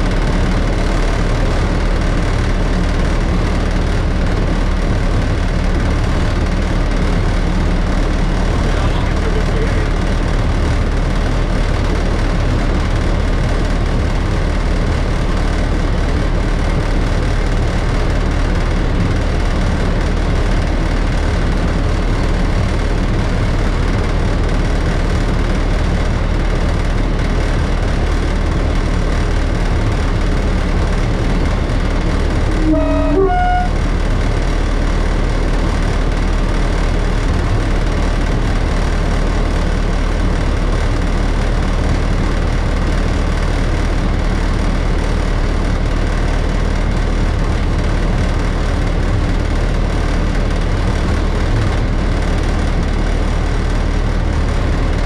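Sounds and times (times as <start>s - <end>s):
locomotive engine running: 0.0s - 55.0s
two-tone locomotive horn: 32.4s - 34.1s.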